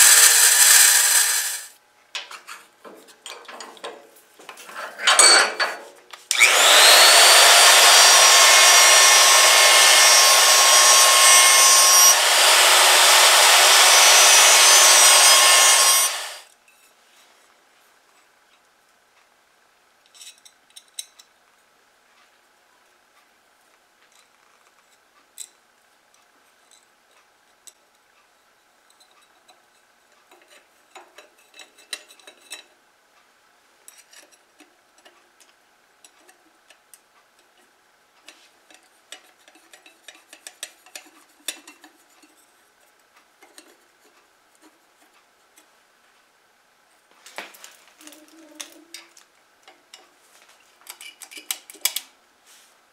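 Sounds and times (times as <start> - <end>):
metal plate clinks and scrapes: 4.7 - 6.0.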